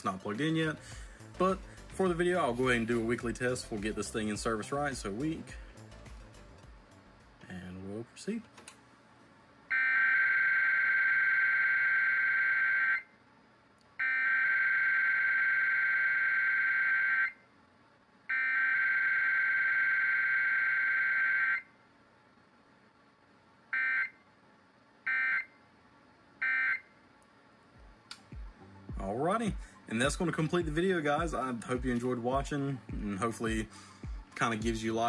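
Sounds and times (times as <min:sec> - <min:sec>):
emergency alert data tones: 0:09.7 - 0:13.1, 0:14.0 - 0:17.4, 0:18.3 - 0:21.7, 0:25.1 - 0:25.5, 0:26.4 - 0:26.9.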